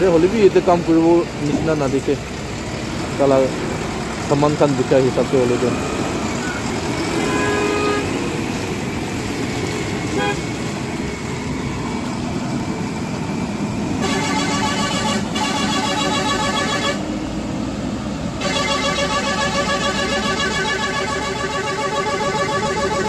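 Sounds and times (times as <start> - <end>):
diesel engine driving past: 0.0 - 23.0
vehicle horns: 5.3 - 8.3, 10.0 - 10.7, 14.0 - 17.2, 18.4 - 23.0.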